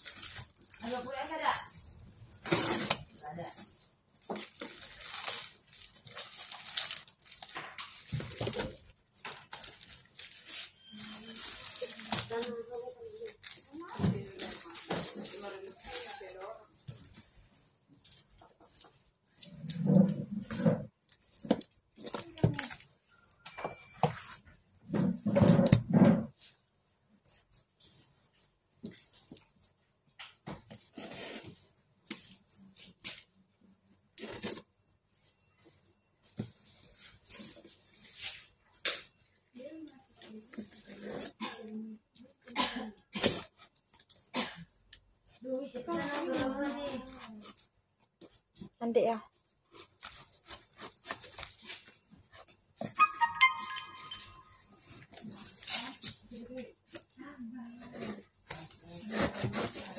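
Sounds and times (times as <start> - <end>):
plastic mailer bag crinkling: 0.0 - 16.4
box cutter scraping through tape: 57.9 - 59.9.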